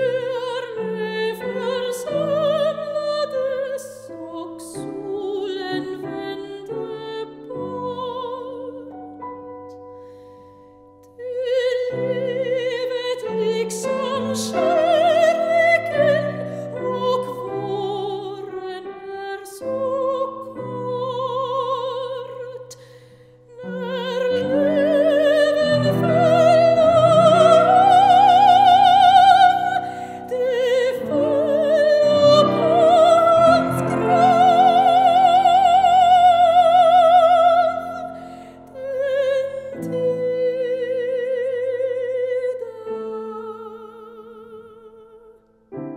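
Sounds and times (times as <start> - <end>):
operatic soprano singing: 0.0 - 9.8, 11.0 - 45.9
grand piano accompaniment: 0.0 - 44.8, 45.6 - 45.9.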